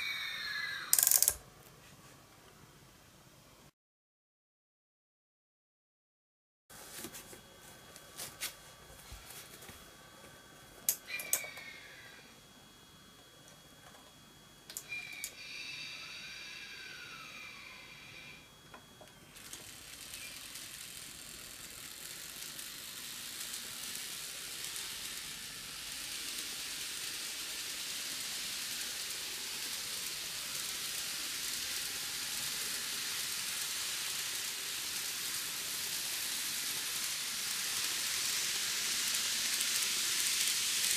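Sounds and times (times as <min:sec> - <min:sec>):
short high-pitched whine: 0:14.8 - 0:34.3
model train running hiss: 0:19.3 - 0:40.9.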